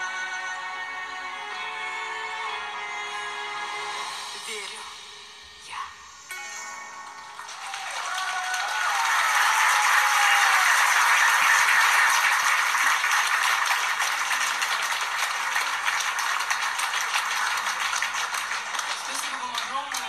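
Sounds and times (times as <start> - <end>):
audience applauding: 7.2 - 20.0.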